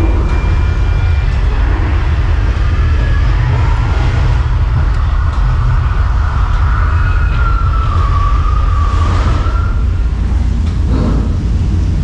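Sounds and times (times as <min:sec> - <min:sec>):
heavy low rumble: 0:00.0 - 0:12.0.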